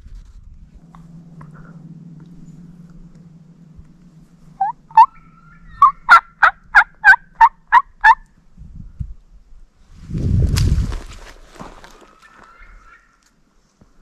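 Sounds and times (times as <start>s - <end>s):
wild turkey yelping: 1.4s - 8.3s, 12.0s - 13.3s
dry leaves rustling: 9.8s - 13.2s.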